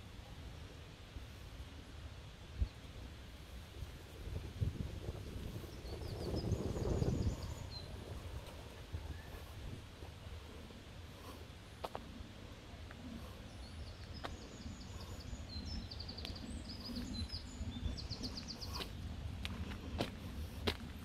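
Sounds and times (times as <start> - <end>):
low outdoor rumble: 0.0 - 21.0
songbird chirping and trilling: 5.4 - 9.6, 12.6 - 19.1.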